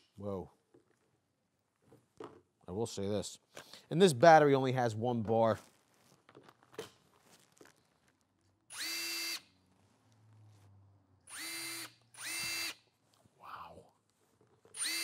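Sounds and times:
impact driver whining: 11.3s - 12.8s, 14.7s - 15.0s.

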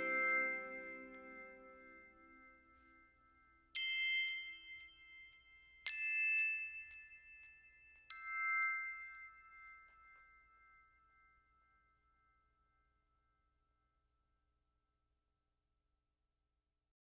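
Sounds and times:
ringing chime-like notes: 0.0s - 13.1s.

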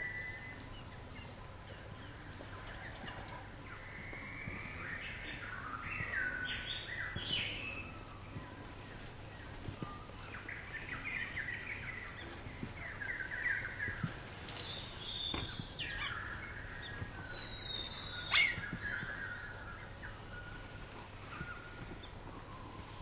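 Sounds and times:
small birds twittering and chirping: 0.0s - 23.0s
high whistled bird calls: 9.8s - 23.0s.

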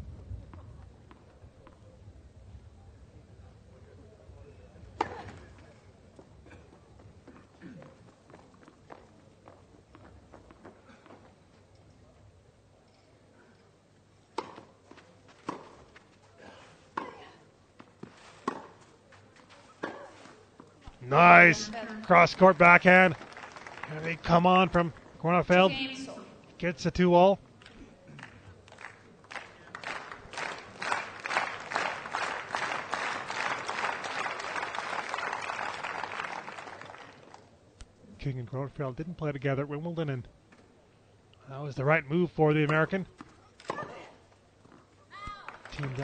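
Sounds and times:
racquet striking tennis ball: 14.4s - 14.7s, 18.4s - 18.8s
crowd applauding: 21.1s - 25.0s, 28.2s - 37.4s, 45.4s - 46.0s.

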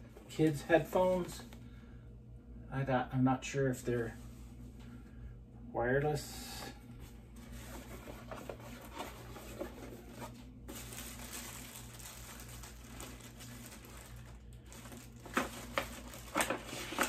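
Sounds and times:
cardboard and plastic bag rustling: 7.0s - 17.0s.

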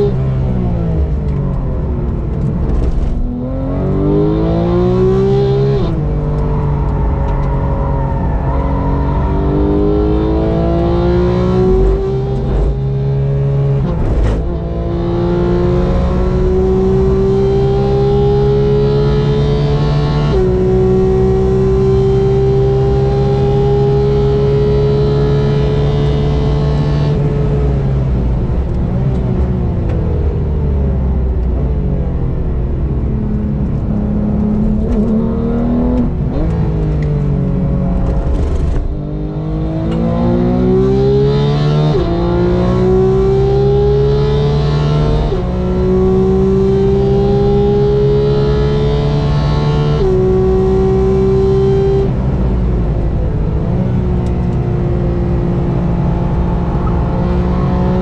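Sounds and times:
car engine revving hard: 3.1s - 27.4s, 37.6s - 52.2s, 55.6s - 58.0s.

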